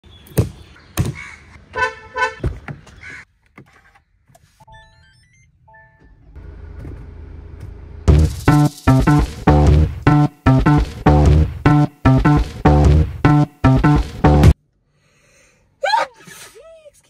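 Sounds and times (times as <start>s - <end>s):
car engine idling: 6.4s - 10.6s.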